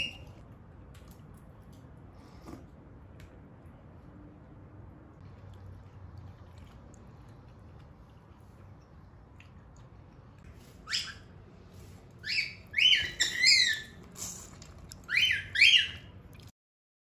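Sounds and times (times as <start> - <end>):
bird chirping loudly: 12.2 - 14.0, 15.1 - 16.1.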